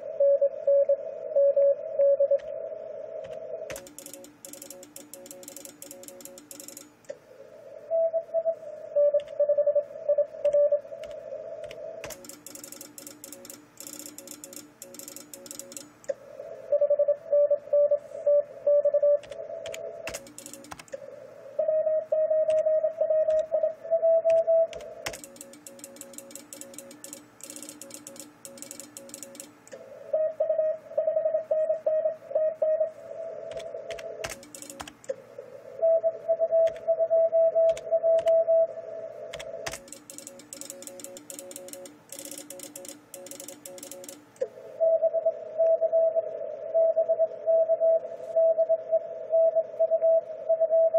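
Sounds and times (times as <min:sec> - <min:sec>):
sharp clicks: 0:03.2 - 0:07.2, 0:09.2 - 0:09.4, 0:10.4 - 0:16.2, 0:19.2 - 0:21.0, 0:24.3 - 0:29.8, 0:33.5 - 0:35.2, 0:36.6 - 0:36.9, 0:37.6 - 0:38.4, 0:39.3 - 0:44.5
morse code tone bursts: 0:12.1 - 0:15.9, 0:21.6 - 0:29.5, 0:35.8 - 0:38.7, 0:39.4 - 0:44.2.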